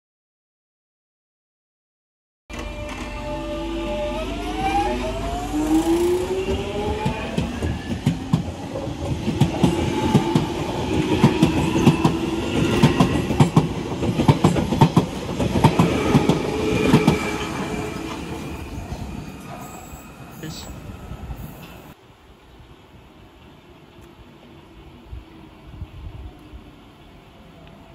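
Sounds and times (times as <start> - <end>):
train traction motor whine: 2.5 - 14.0, 15.4 - 20.6.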